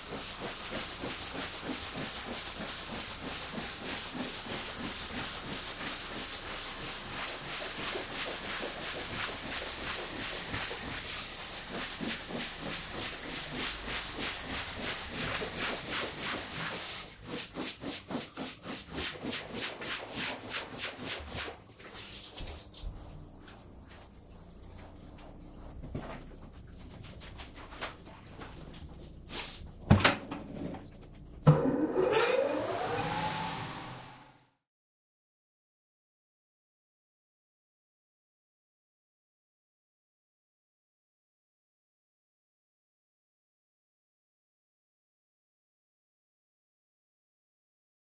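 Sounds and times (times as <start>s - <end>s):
pressure washer spraying rug: 0.0s - 21.5s.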